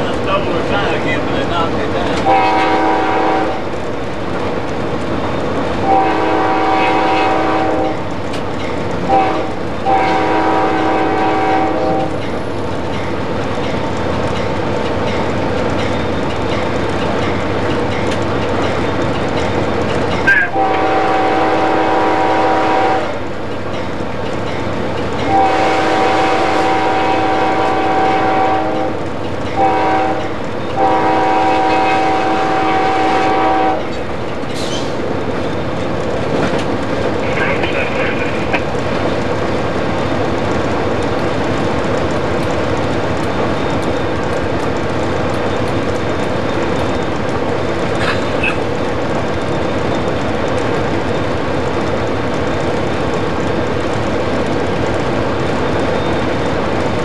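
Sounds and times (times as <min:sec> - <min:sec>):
train rumbling on rails: 0:00.0 - 0:57.0
locomotive air horn blasts: 0:02.3 - 0:03.6, 0:05.8 - 0:08.0, 0:09.1 - 0:12.2, 0:20.5 - 0:23.2, 0:25.3 - 0:29.0, 0:29.6 - 0:33.9.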